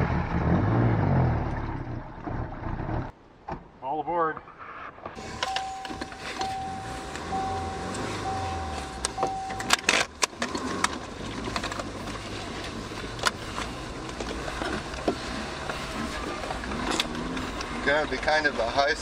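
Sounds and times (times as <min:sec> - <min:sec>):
electronic warning beep: 0:05.2 - 0:10.0
car engine running fast: 0:05.2 - 0:19.0.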